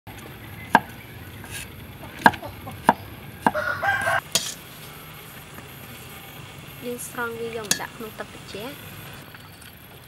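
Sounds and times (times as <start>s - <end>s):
cleaver chopping on wooden board: 2.2s - 3.6s.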